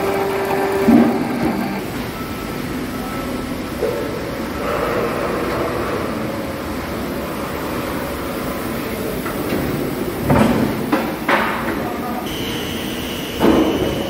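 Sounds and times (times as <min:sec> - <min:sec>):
machine clunk: 0:13.3 - 0:14.0.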